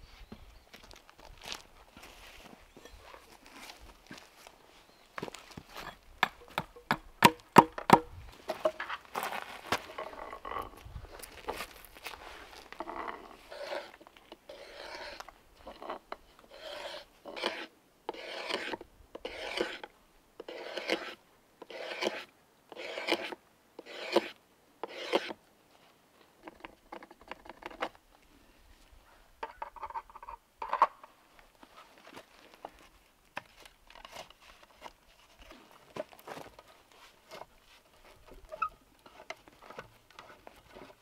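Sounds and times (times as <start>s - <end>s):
drawknife shaving wood: 16.5s - 19.8s, 20.5s - 22.2s, 22.8s - 25.4s.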